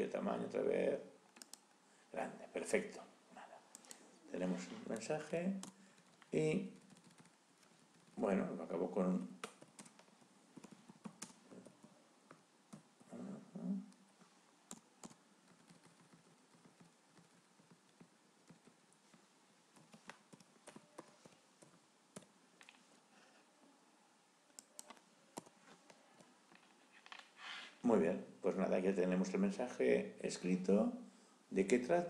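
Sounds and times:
typing on keyboard: 5.6s - 8.2s, 9.4s - 11.8s, 14.7s - 22.3s.

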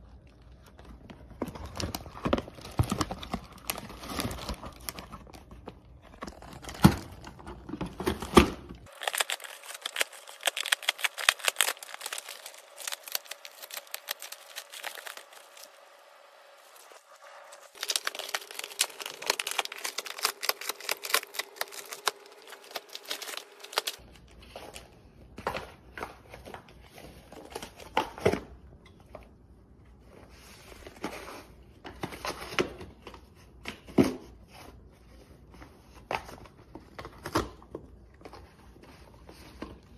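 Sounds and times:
plastic bags crinkling: 0.2s - 24.0s
cardboard ripping: 6.1s - 24.0s.

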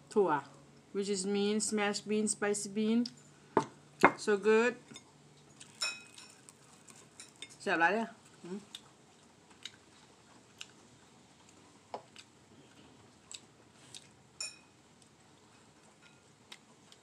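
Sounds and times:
faint chewing: 5.3s - 7.6s, 8.2s - 14.2s, 14.9s - 17.0s.

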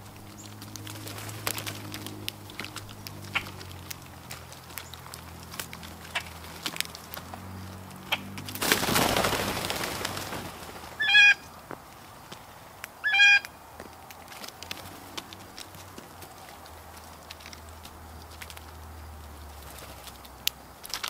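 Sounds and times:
nasal mewing bird calls: 0.0s - 10.2s, 10.9s - 11.6s, 12.9s - 13.6s
pecking and hopping clicks: 0.0s - 10.7s, 11.6s - 21.0s
birds flushing wingbeats: 0.0s - 21.0s.

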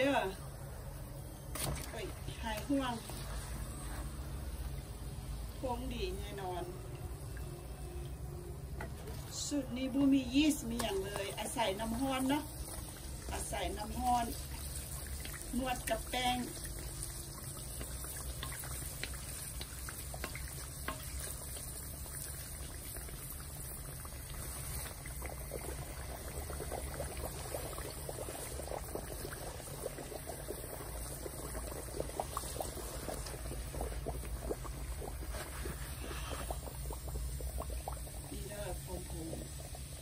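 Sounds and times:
hot oil bubbling and crackling: 0.0s - 40.0s
oil spooned from wooden spatula: 10.6s - 29.4s, 30.0s - 38.3s.

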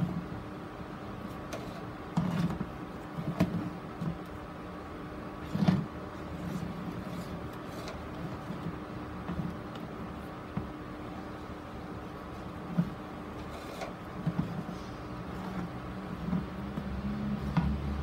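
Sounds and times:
faint steady hum: 0.0s - 18.0s
soft knocks and rustles on plastic: 12.7s - 14.7s.

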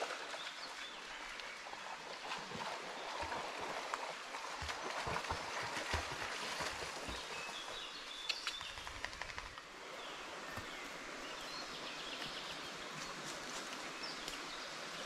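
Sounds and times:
stream running water: 0.0s - 15.0s
dog splashing through water: 2.3s - 7.6s.

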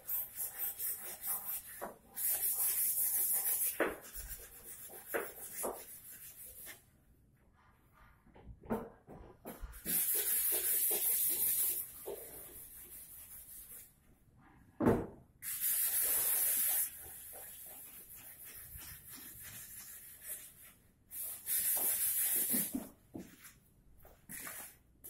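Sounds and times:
compressed air hissing: 15.4s - 17.0s.

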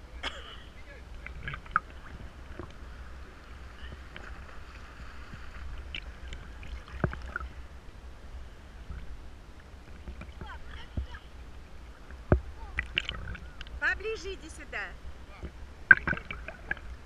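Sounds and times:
low steady rumble: 0.0s - 17.0s
small waves lapping: 0.0s - 17.0s
sharp splashes: 12.2s - 13.8s, 15.8s - 17.0s.

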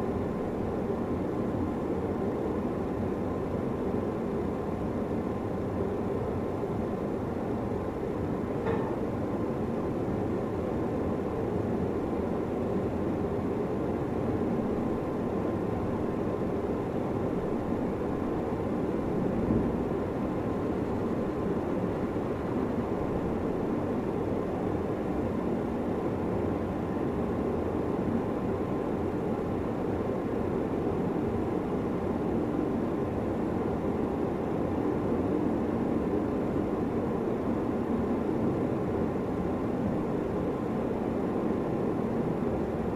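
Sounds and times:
faint steady hum: 0.0s - 42.9s.

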